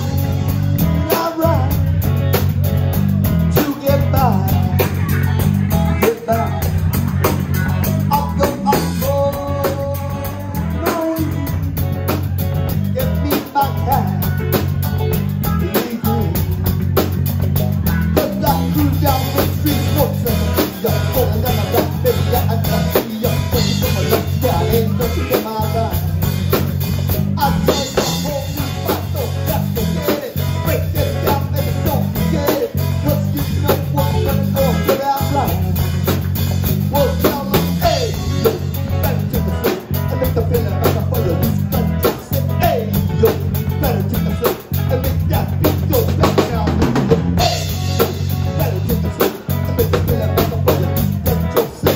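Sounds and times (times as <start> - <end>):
man singing into microphone: 0.0 - 2.0, 3.5 - 11.7, 12.7 - 14.6, 15.4 - 16.6, 18.0 - 26.2, 27.2 - 35.8, 36.8 - 47.0, 48.0 - 51.9
bass guitar: 0.0 - 51.9
drum kit beat: 0.0 - 51.9
electric guitars: 0.0 - 51.9.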